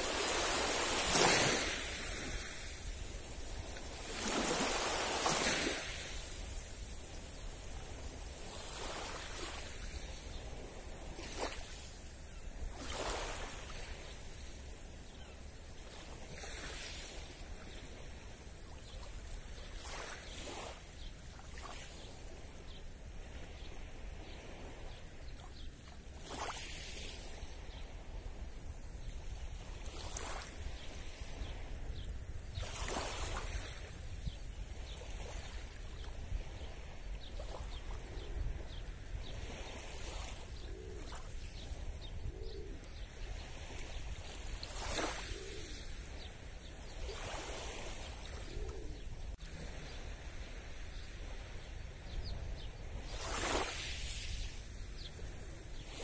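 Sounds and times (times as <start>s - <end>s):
waves lapping on shore: 0.0s - 56.0s
faint cooing bird calls: 37.6s - 44.0s, 44.8s - 50.5s.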